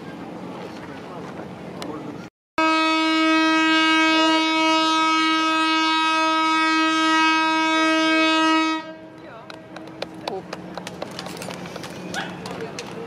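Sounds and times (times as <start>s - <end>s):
ship's horn blast: 2.6s - 9.2s.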